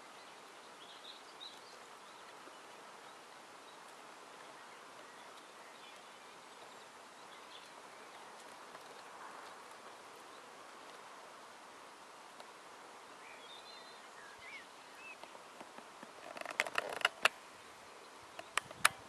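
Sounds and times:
distant bird calls: 12.8 - 19.0
sharp clicks and knocks: 15.6 - 17.4.

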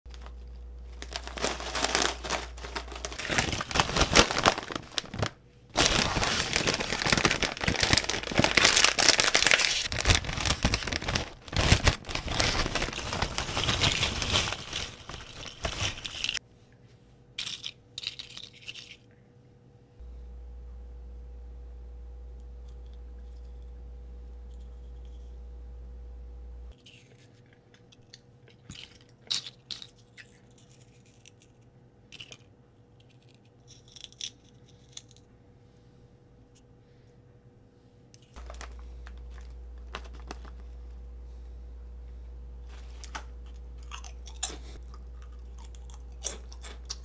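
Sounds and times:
plastic snack bag crinkling: 0.1 - 16.4, 38.2 - 41.0, 42.6 - 47.0
snacks rustling in bag: 0.1 - 16.4, 38.2 - 41.0, 42.6 - 47.0.

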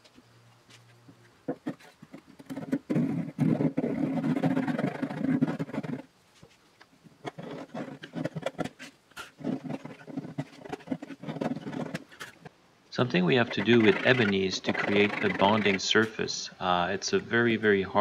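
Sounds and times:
hand tool scraping and ticking: 1.5 - 6.0, 7.2 - 16.3
handsaw cutting wood: 13.3 - 15.9.

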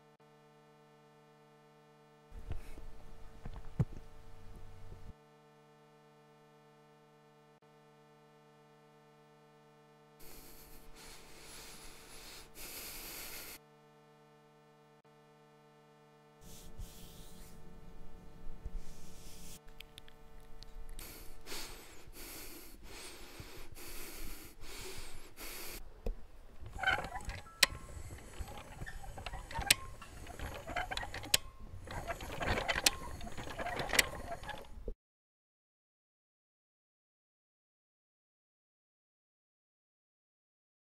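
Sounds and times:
crackling noise with sharp clicks: 19.6 - 21.7.

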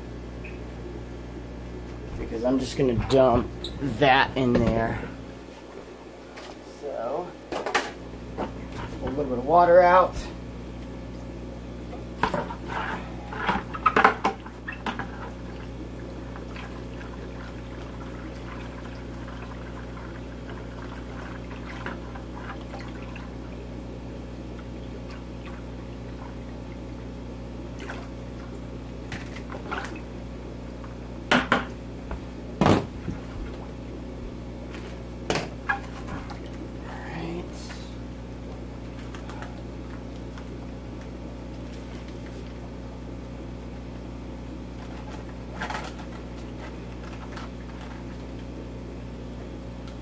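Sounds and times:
low equipment hum: 0.0 - 50.0
water trickling into bucket: 14.6 - 23.6.

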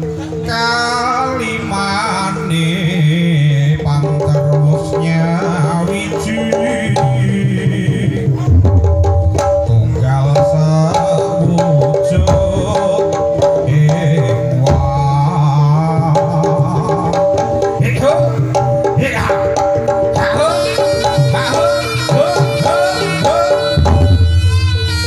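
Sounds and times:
hand-drum beats: 0.0 - 25.0
held melodic tones: 17.3 - 25.0.

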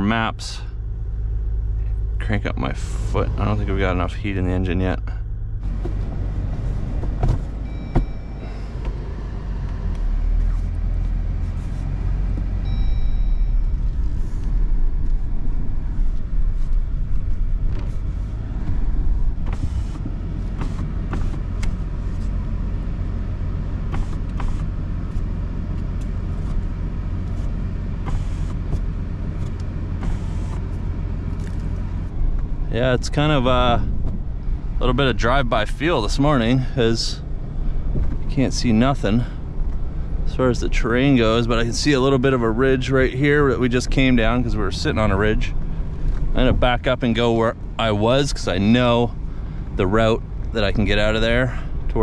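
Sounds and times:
diesel engine low rumble: 0.0 - 52.0
electronic dash chimes: 7.6 - 9.2, 12.6 - 14.7.

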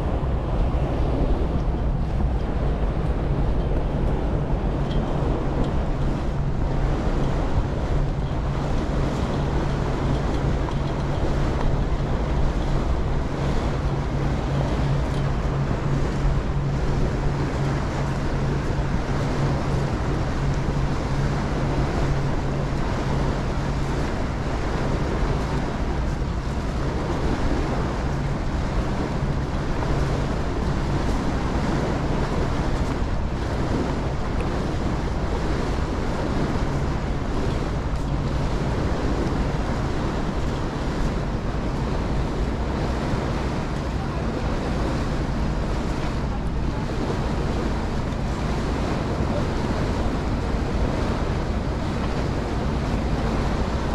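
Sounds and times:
ferry engine droning: 0.0 - 53.9
wind buffeting microphone: 0.0 - 53.9.

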